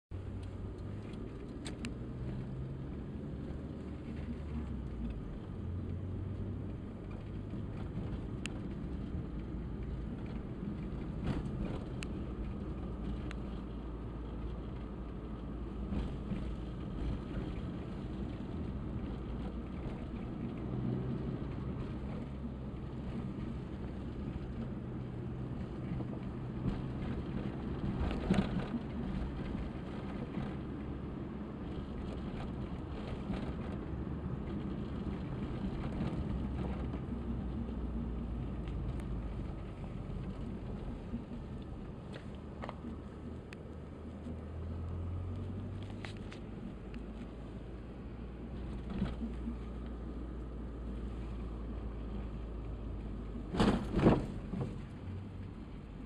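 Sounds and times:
car engine and road noise: 0:00.1 - 0:56.0.

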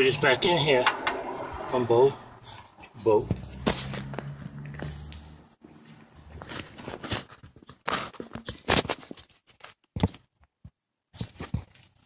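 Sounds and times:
clicks and scrapes of car parts: 0:00.0 - 0:09.3.

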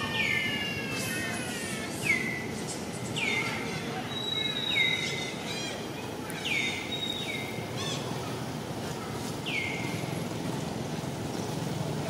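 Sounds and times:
low background noise: 0:00.0 - 0:12.0
bird whistling calls: 0:01.9 - 0:02.5, 0:03.2 - 0:08.1.

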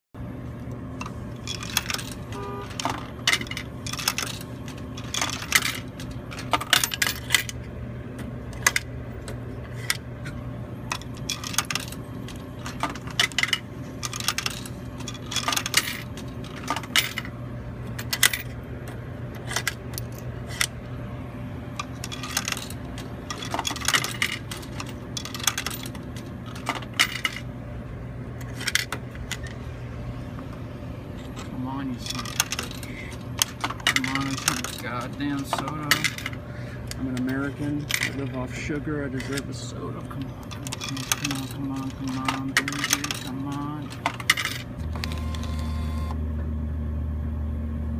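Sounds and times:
steady low hum: 0:00.2 - 0:47.9
coins clinking into machine: 0:01.4 - 0:07.7, 0:10.9 - 0:17.3, 0:17.9 - 0:18.6, 0:21.8 - 0:27.5, 0:31.2 - 0:36.4, 0:37.0 - 0:38.5, 0:39.1 - 0:45.7.

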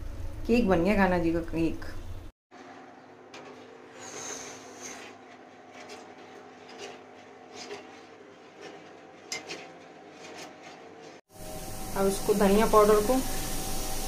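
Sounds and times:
rubbing and handling noises: 0:02.6 - 0:11.3.

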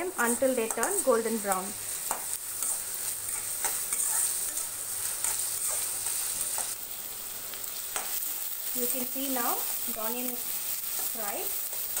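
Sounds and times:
onions sizzling in hot oil: 0:00.0 - 0:12.0
metal spoon scraping a pan: 0:00.2 - 0:06.8.

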